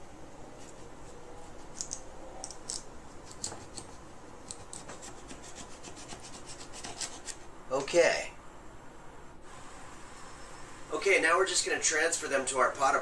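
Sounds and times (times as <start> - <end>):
knife sawing through potato: 3.3 - 7.4.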